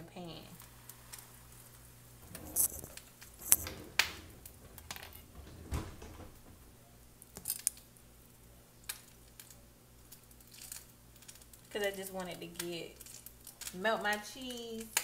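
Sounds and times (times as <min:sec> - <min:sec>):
dull thump: 0:02.2 - 0:06.8
kitchen clicks and knocks: 0:02.2 - 0:06.8.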